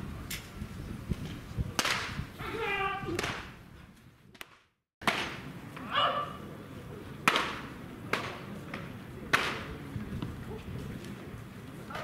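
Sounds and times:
baseballs smacking into mitts: 1.8s - 2.2s, 3.1s - 3.5s, 4.3s - 5.4s, 7.2s - 9.7s.

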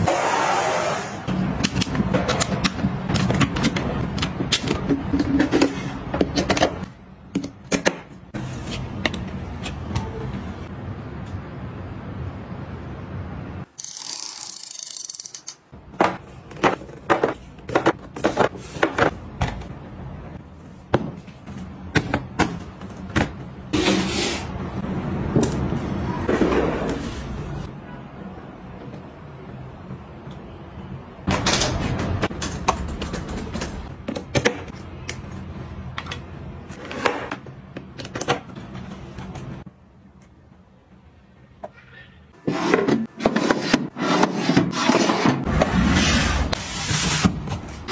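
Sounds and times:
desk items clicking and knocking: 31.3s - 34.8s.

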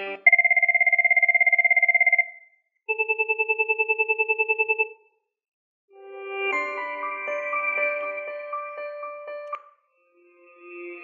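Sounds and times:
slow-pulsing electronic chirp: 0.2s - 5.1s.

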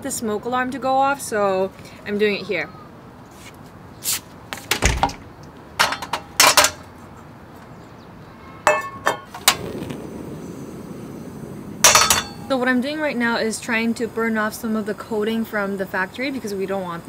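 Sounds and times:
steel skillets clanking: 5.8s - 6.8s, 8.6s - 9.7s, 11.8s - 12.6s
gas burner hissing: 9.1s - 17.0s.

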